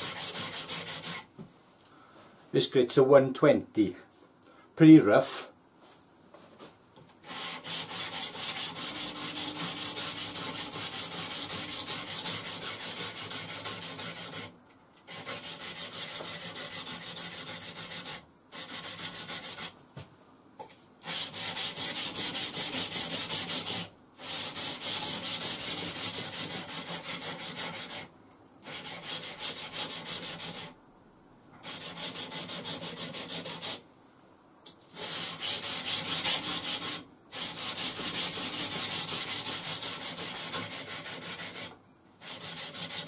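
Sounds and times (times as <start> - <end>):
knife scraping on abrasive belt: 7.2 - 14.5.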